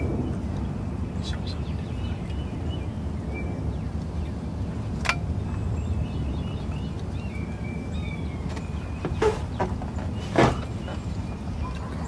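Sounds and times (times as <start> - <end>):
low rumble: 0.0 - 8.5.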